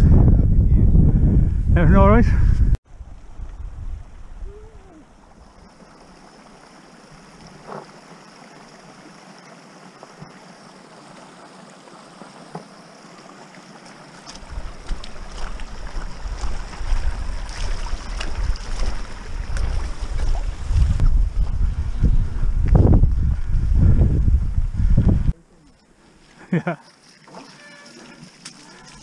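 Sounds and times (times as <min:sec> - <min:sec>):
wind buffeting microphone: 0:00.0 - 0:04.9, 0:14.4 - 0:25.4
steady outdoor hiss: 0:02.9 - 0:29.0
bike rolling over stones: 0:11.4 - 0:21.6.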